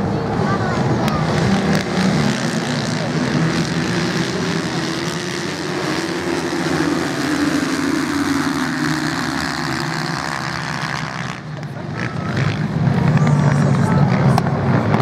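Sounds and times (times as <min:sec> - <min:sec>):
motocross bikes revving: 0:00.0 - 0:15.0.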